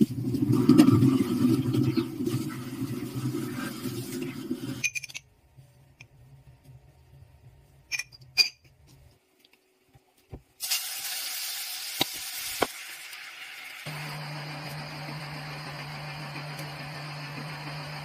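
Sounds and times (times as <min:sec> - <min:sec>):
meat sizzling in oil: 0:10.6 - 0:13.9.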